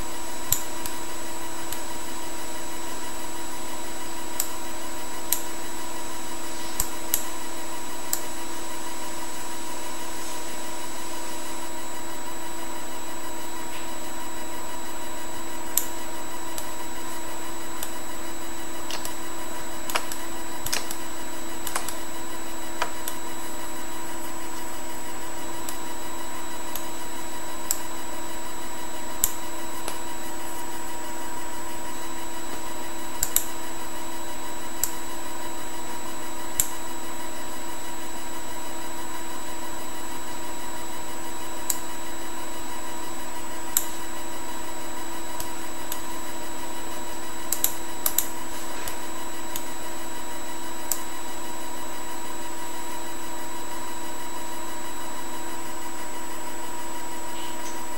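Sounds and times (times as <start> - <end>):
steady electrical hum: 0.0 - 57.9
computer mouse clicks: 6.8 - 7.3, 18.9 - 19.2, 19.9 - 21.0, 21.6 - 22.0, 33.2 - 33.5, 47.5 - 49.7.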